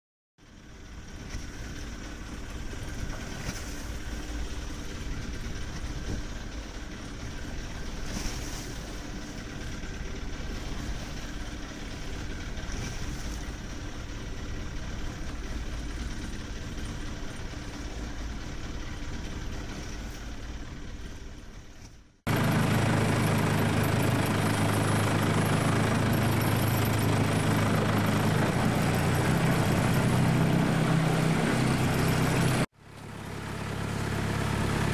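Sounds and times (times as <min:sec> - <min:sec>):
boat engine running: 0:00.5 - 0:34.9.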